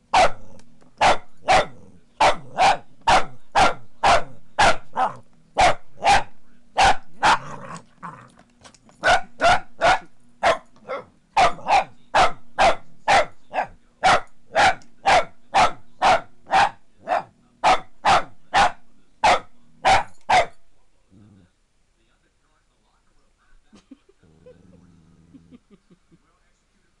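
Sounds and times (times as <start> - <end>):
dog barking sharply: 1.0 - 7.5, 9.0 - 20.6.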